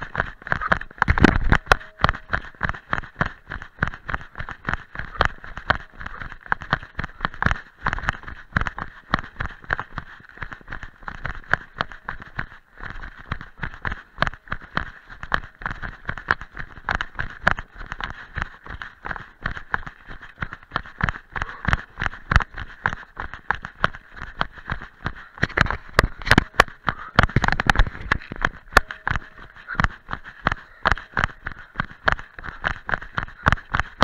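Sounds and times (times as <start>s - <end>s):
running footsteps crunching leaves: 0.0s - 34.0s.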